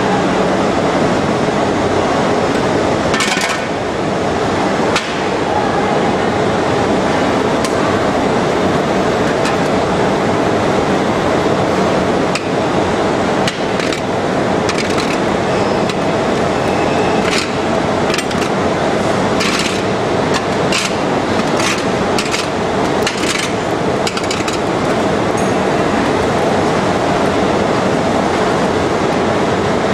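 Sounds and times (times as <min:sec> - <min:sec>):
loud lathe machine din: 0:06.3 - 0:28.2.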